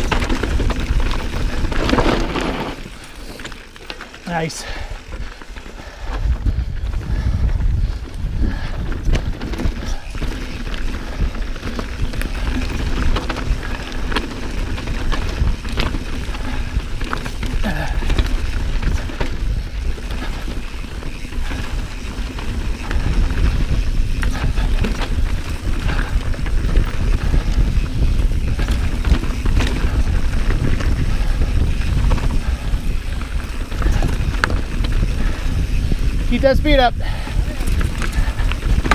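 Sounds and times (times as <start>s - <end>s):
bike rattling over rocks: 0.0s - 38.9s
wind buffeting microphone: 0.0s - 38.9s.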